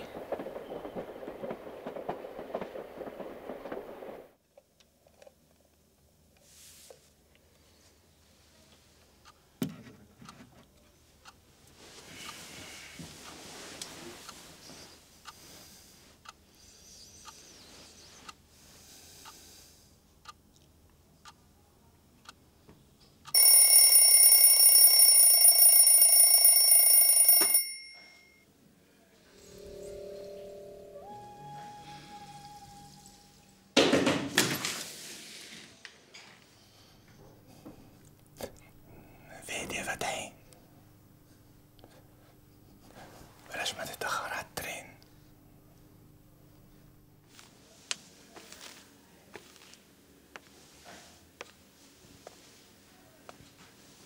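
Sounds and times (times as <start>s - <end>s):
train rumbling with clicks: 0.0s - 4.4s
faint ticks: 18.2s - 18.4s
alarm clock ticking: 23.2s - 28.4s
alarm clock bells ringing: 23.3s - 28.4s.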